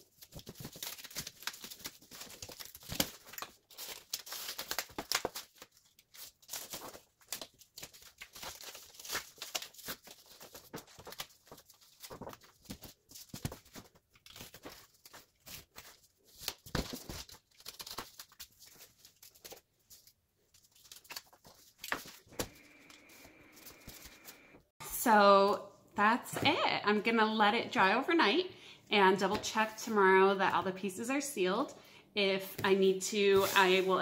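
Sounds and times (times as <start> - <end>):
cardboard tearing and scraping: 0.1 - 19.6.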